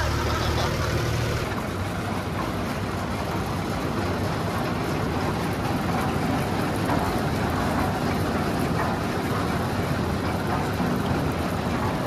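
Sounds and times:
road noise: 0.0 - 5.0
engine running: 0.0 - 12.0.

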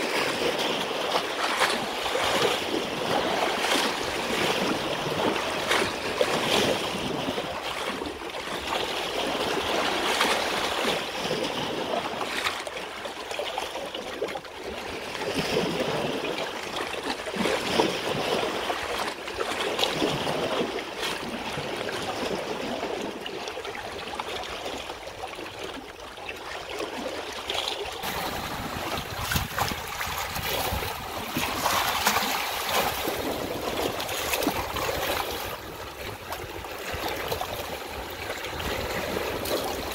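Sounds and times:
stream water rushing: 0.0 - 7.1, 26.8 - 39.9.

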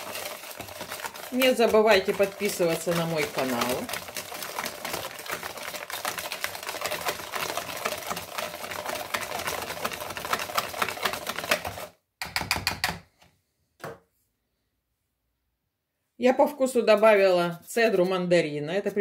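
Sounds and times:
wire whisk rattling in bowl: 0.0 - 11.9.

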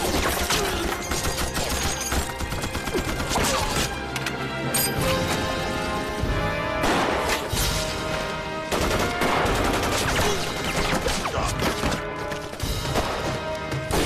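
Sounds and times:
rifle and machine-gun fire: 0.0 - 3.8, 8.6 - 12.1
background music sustained tones: 0.0 - 11.0.

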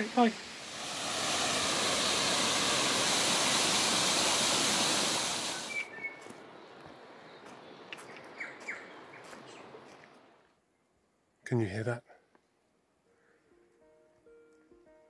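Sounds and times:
waterfall splashing over rocks: 0.0 - 5.8
high bird chirps: 5.4 - 9.6.

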